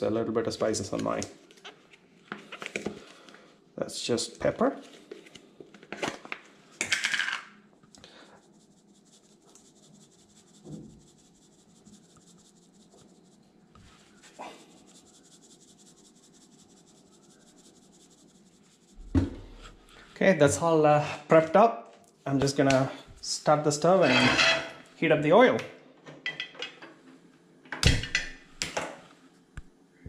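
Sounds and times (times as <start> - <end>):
pepper shaker rattling: 14.3 - 19.0.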